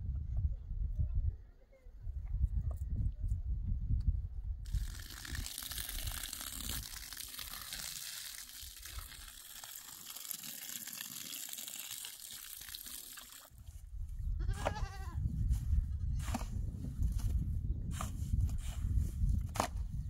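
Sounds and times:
water running from hose: 4.7 - 13.5
animal bleat: 14.4 - 15.2.

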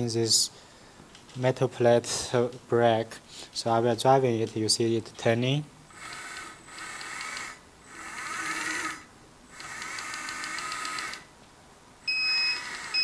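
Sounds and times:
toy electric motor whining: 5.9 - 11.3, 12.1 - 13.0.

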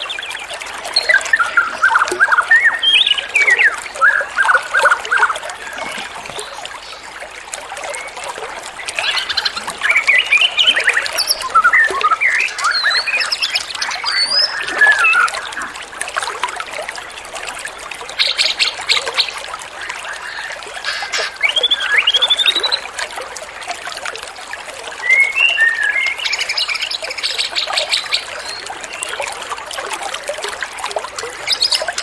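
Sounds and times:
small songbirds chirping: 8.8 - 15.6, 18.2 - 22.9.

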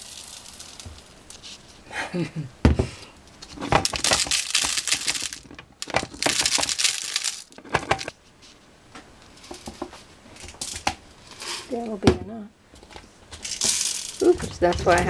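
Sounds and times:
seeds pouring into plastic bottle: 0.0 - 1.7, 3.8 - 7.5.

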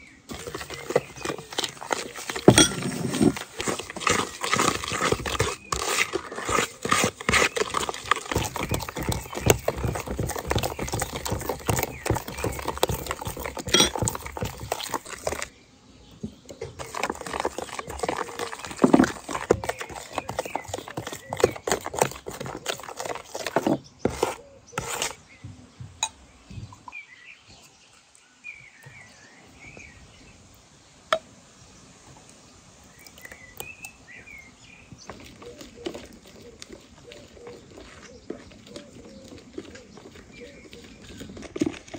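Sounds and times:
small birds chirping: 0.0 - 41.9
wooden spoon beating in plastic bowl: 0.3 - 15.5, 16.5 - 25.0.

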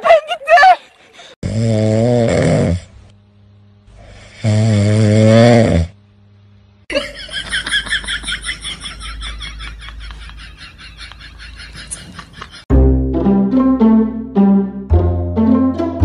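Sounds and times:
puppy snoring: 1.4 - 3.0, 4.0 - 6.0
background music with quick pulse: 12.7 - 16.0.

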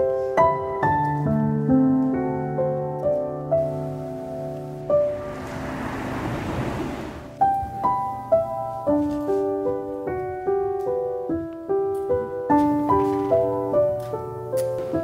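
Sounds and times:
gentle piano melody: 0.0 - 15.0
rushing noise: 4.9 - 7.5.

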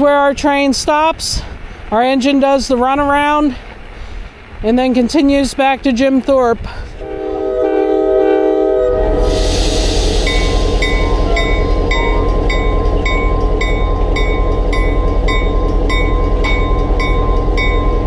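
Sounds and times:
diesel locomotive engine: 5.7 - 18.0
locomotive horn: 7.0 - 14.1.

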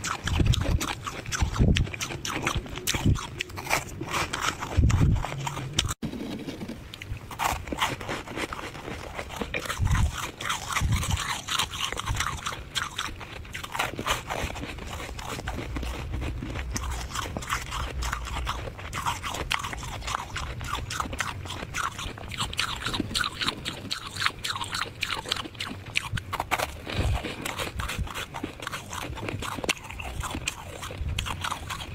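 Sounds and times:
freezer frost crunching: 0.0 - 31.9.

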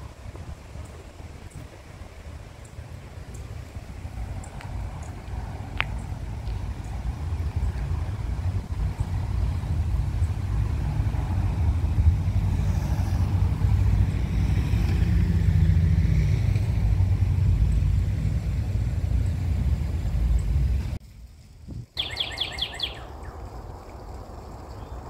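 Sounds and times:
traffic rumble: 0.0 - 25.0
vehicle passing: 2.0 - 21.0.

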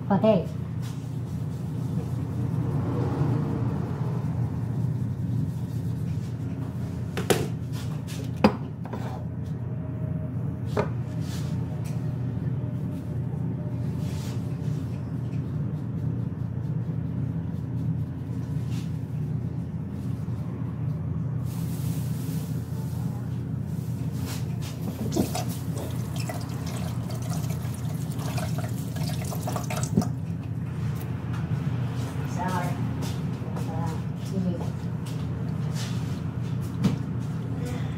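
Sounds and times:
steady low hum: 0.0 - 37.9
water running from tap into sink: 25.0 - 30.4.

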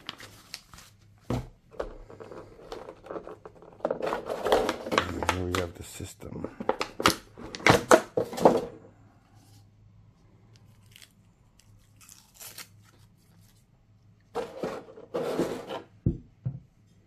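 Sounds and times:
packaging crackling and rustling: 0.0 - 1.2, 2.1 - 5.9.

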